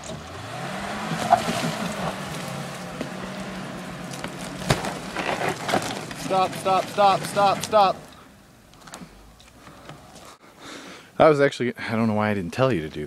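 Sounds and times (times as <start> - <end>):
pickup truck engine revving: 0.0 - 8.5.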